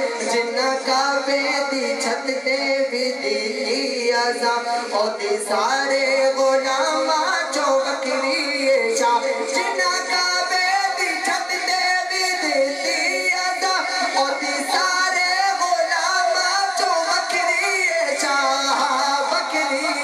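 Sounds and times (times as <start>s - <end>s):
man singing into a microphone: 0.0s - 20.0s.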